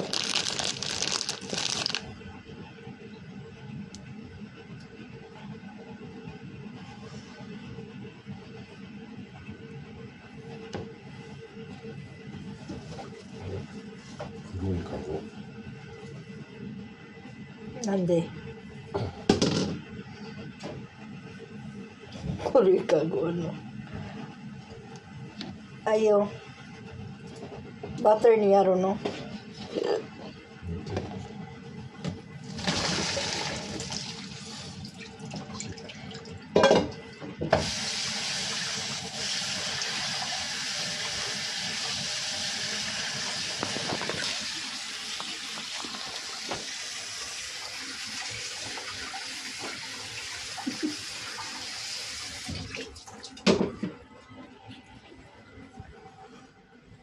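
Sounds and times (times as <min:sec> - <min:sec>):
water running: 0:32.5 - 0:36.4, 0:37.6 - 0:53.4.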